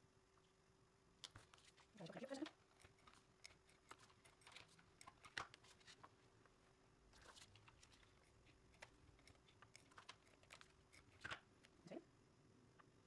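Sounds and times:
tape runner drawn along paper: 0:01.3 - 0:06.1, 0:07.2 - 0:11.4.

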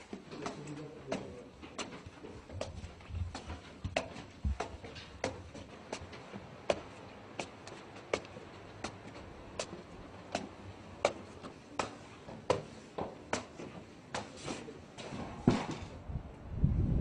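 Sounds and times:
footsteps on stone stairs: 0:00.0 - 0:15.8
wind buffeting microphone: 0:16.0 - 0:17.0.

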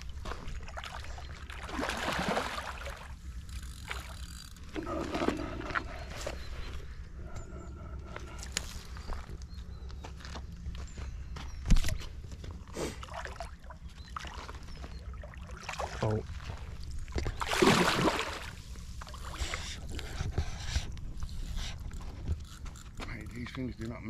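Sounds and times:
fish thrashing in water: 0:00.2 - 0:03.2, 0:13.0 - 0:19.6.

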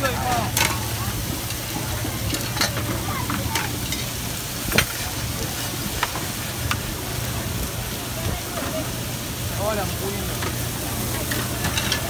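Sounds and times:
meat sizzling on griddle: 0:00.0 - 0:12.0
metal utensils scraping griddle: 0:00.1 - 0:05.2, 0:11.0 - 0:12.0.

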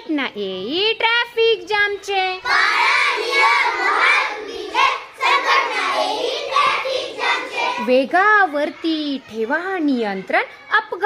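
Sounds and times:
children singing in chorus: 0:02.5 - 0:07.8.

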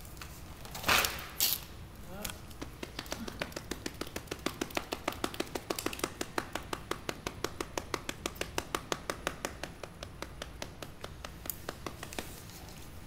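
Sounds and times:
bonobo lip-smacking: 0:02.2 - 0:08.9.

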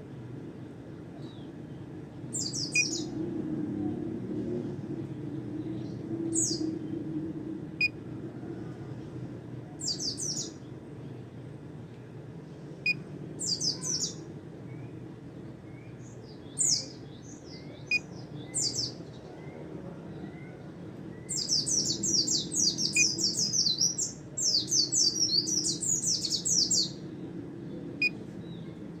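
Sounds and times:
bird chirping in rapid bursts: 0:02.4 - 0:03.1, 0:21.3 - 0:27.0.

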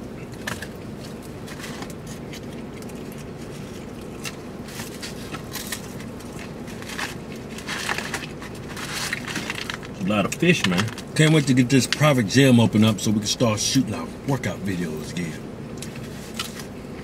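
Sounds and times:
people chewing fried food: 0:00.0 - 0:11.2
low hum inside a car: 0:00.0 - 0:17.0
food crunches and rustles: 0:00.2 - 0:12.1, 0:15.8 - 0:16.8.

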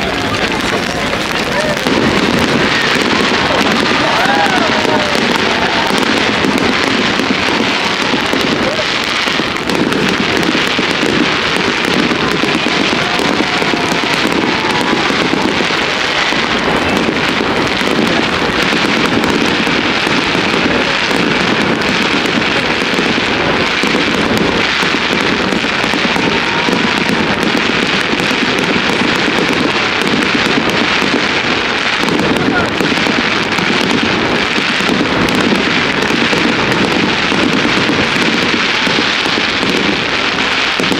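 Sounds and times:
fireworks crackling and banging: 0:00.0 - 0:40.9.

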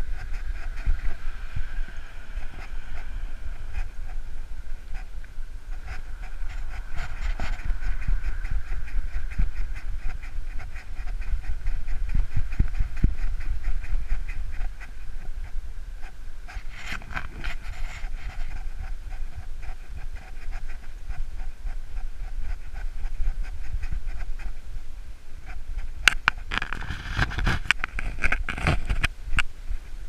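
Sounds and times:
wind rumble on microphone: 0:00.0 - 0:30.0
small dog panting: 0:05.7 - 0:24.6.

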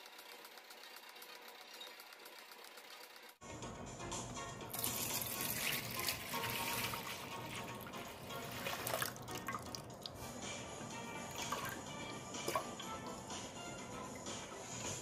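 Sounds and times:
background music: 0:03.4 - 0:15.0
liquid pouring into glass bowl: 0:04.7 - 0:10.2.

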